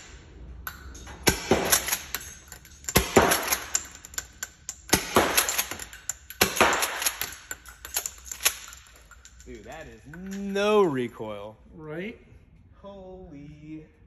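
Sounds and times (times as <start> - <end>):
shotgun shots cracking: 1.2 - 2.1, 2.9 - 3.8, 4.9 - 7.4.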